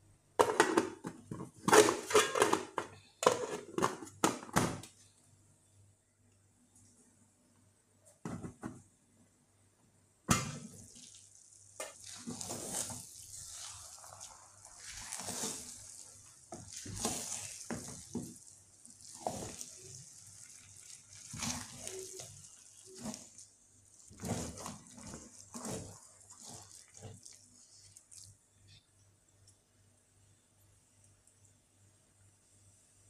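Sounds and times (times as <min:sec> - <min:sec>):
wooden spatula scraping pot: 0:10.9 - 0:28.3.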